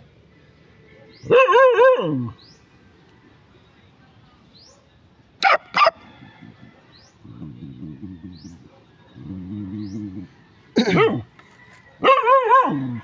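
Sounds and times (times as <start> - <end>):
dog barking: 1.3 - 2.3, 5.4 - 6.0, 12.0 - 13.0.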